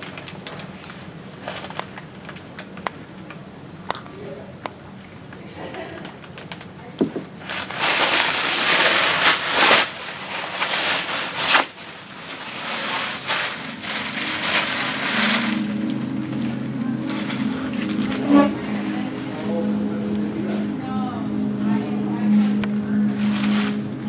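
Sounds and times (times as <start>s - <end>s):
paper towels crumpling: 0.0s - 3.0s, 7.3s - 19.4s, 23.0s - 24.0s
low steady hum: 0.0s - 24.0s.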